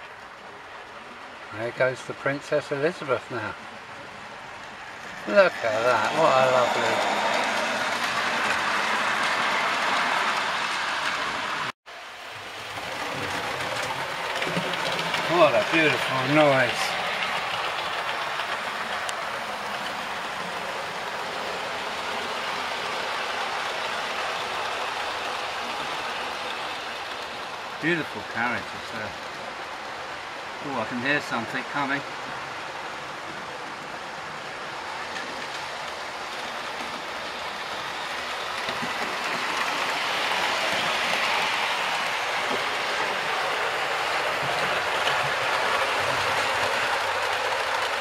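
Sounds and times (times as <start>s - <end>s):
model train wheels rattling on rails: 0.0s - 11.7s, 12.3s - 48.0s.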